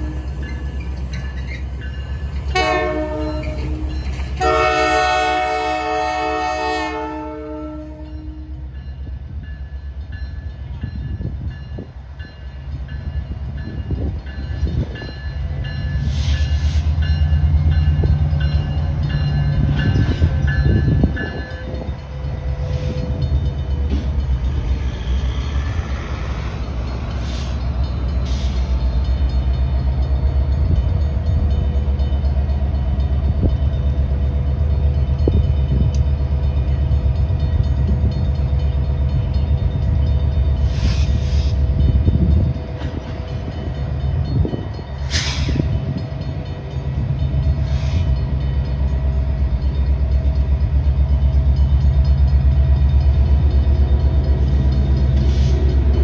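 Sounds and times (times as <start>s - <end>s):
train rumbling over crossing: 0.0s - 56.0s
locomotive air horn: 2.5s - 8.5s.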